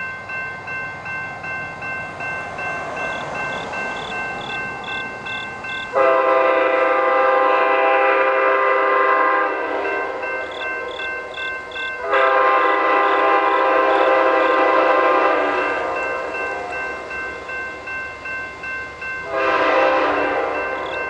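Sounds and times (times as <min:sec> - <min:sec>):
crossing bell dinging: 0:00.0 - 0:21.0
locomotive air horn blasts: 0:05.9 - 0:10.2, 0:12.0 - 0:16.0, 0:19.2 - 0:20.8.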